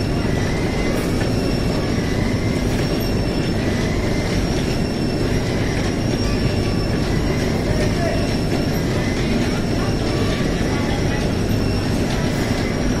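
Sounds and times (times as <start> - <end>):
conveyor belts rumbling over rollers: 0.0 - 13.0.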